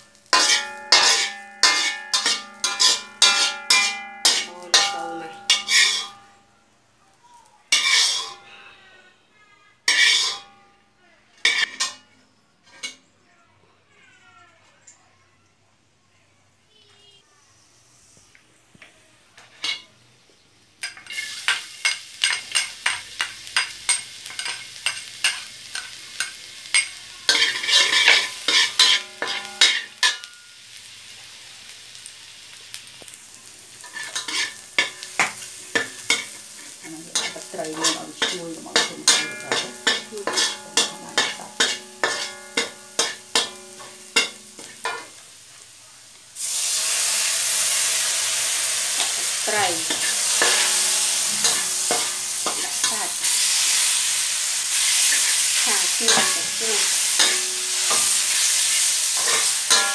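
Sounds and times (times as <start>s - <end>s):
metal spatula scraping a wok: 0.0s - 6.4s, 7.7s - 8.6s, 9.9s - 10.7s, 11.4s - 13.0s, 20.9s - 30.8s, 33.7s - 45.2s, 48.9s - 59.9s
aromatics sizzling in oil: 0.0s - 6.5s, 7.2s - 8.5s, 9.9s - 10.4s, 17.7s - 59.9s
wok ringing: 0.0s - 6.8s, 7.7s - 8.6s, 9.9s - 12.2s, 20.8s - 30.8s, 33.7s - 45.4s, 46.4s - 59.9s
liquid hissing in hot wok: 46.3s - 59.9s.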